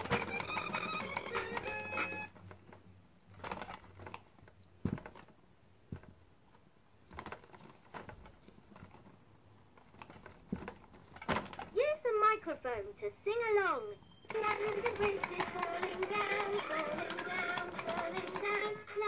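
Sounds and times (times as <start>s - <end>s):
plastic buttons tapping: 0.0s - 2.2s, 14.3s - 18.9s
tinny electronic toy tune: 0.0s - 2.3s.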